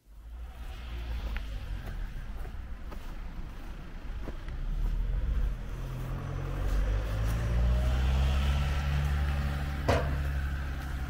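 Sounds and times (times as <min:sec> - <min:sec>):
tractor diesel engine humming: 0:00.4 - 0:11.0.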